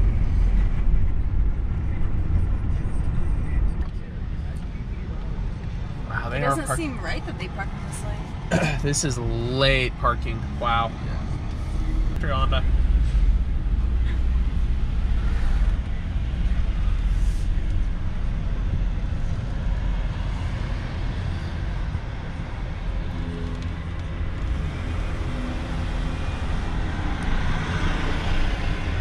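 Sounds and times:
van engine and road rumble: 0.0s - 29.0s.

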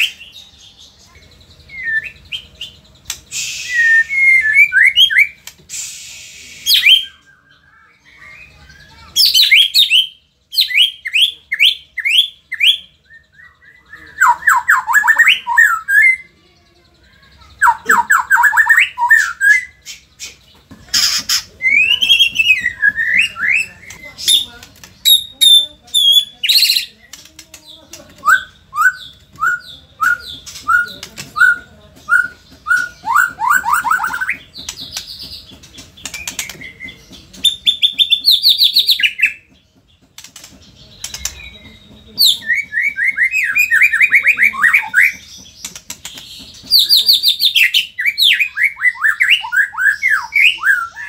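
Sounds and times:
bird singing whistles and trills: 1.1s - 16.3s, 17.6s - 20.4s, 28.2s - 35.1s, 46.7s - 51.0s.

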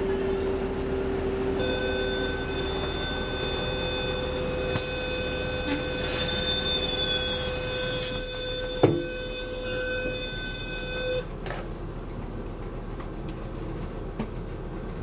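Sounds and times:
train electric hum: 0.0s - 15.0s.

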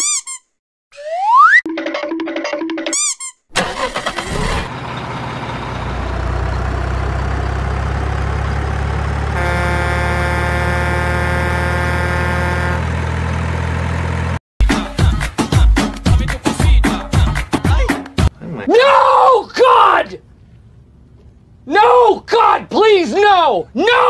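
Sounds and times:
truck engine cranking and running: 3.5s - 14.4s
truck horn blast: 9.2s - 13.3s.

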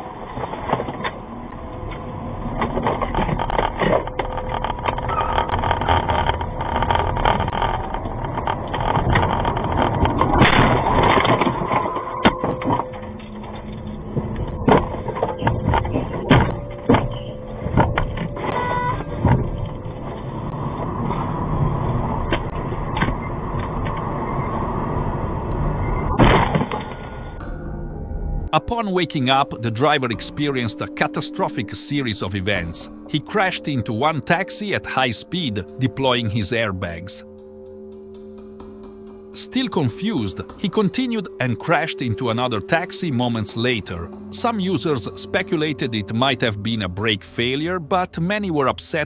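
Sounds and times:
heavy car crash: 26.1s - 27.4s.

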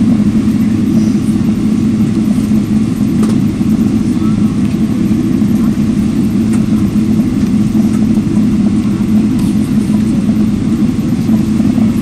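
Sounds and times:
jet engine noise: 0.0s - 12.0s
wheels rumbling on runway: 0.0s - 12.0s.

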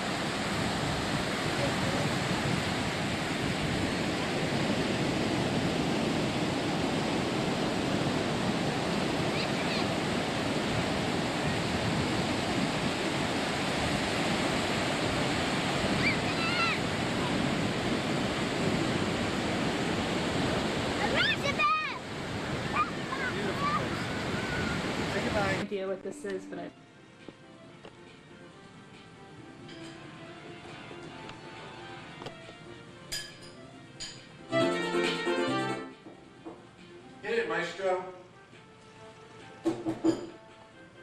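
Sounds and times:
ocean waves breaking: 0.0s - 26.7s.

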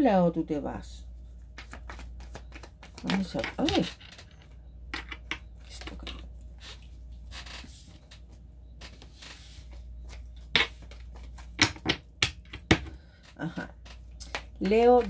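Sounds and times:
cards being shuffled: 1.4s - 4.4s, 12.6s - 15.0s.

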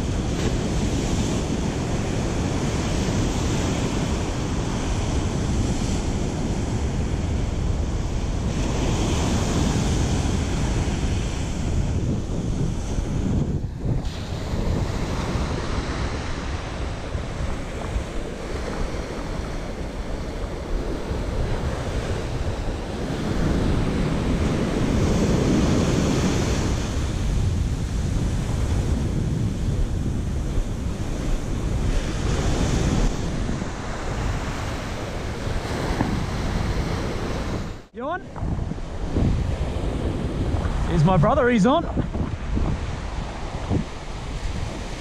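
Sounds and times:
ocean surf breaking: 0.0s - 45.0s
wind buffeting microphone: 0.0s - 45.0s.

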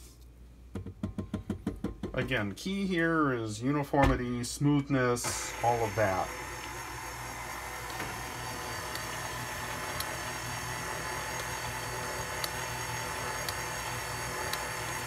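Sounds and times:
stand mixer motor running: 5.3s - 15.0s.

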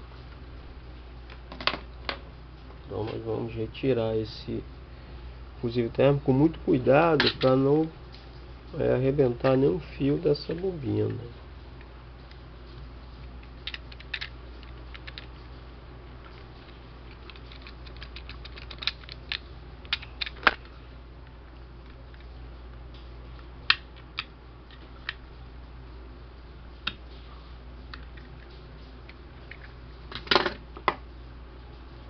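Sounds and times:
faint low hum: 0.0s - 32.0s
small clicks and scrapes: 16.2s - 20.7s.

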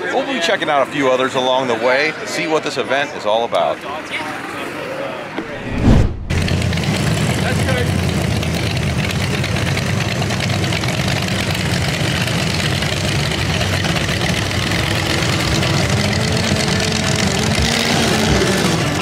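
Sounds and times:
car engine idling with deep rumble: 6.4s - 19.0s.

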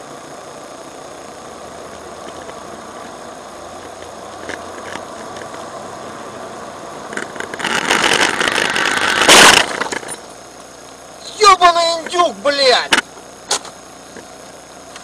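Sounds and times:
car engine and road noise: 0.0s - 11.2s
loud rough rattling noise: 7.0s - 10.4s
sharp crash bang: 9.2s - 9.9s.

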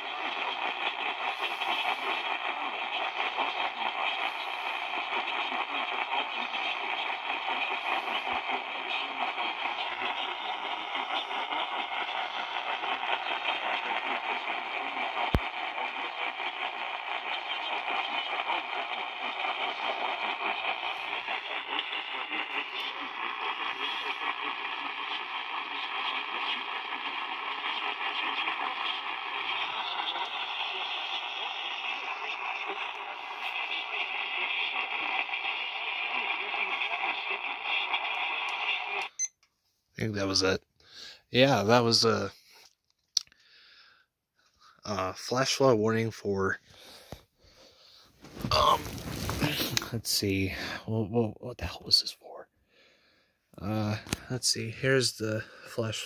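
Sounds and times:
radio static and hiss: 0.0s - 39.2s, 41.3s - 42.5s, 48.2s - 52.4s, 53.6s - 56.0s
voice on radio: 5.7s - 14.5s, 44.9s - 46.6s, 48.5s - 52.4s, 53.6s - 56.0s.

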